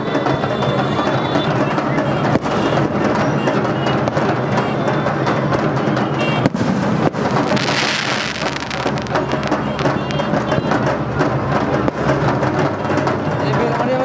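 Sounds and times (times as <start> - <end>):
firecrackers banging: 0.0 - 14.0
music with drums and percussion: 0.0 - 14.0
hissing rush: 6.6 - 9.9.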